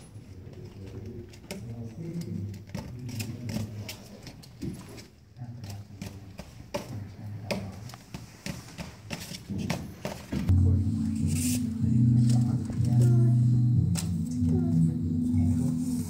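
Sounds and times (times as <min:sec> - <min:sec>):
video soundtrack over loudspeakers: 0:10.5 - 0:16.0.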